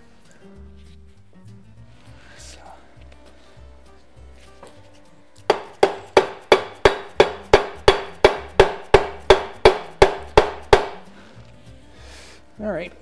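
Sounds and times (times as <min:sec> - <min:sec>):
mallet striking metal shaft: 0:05.5 - 0:11.0.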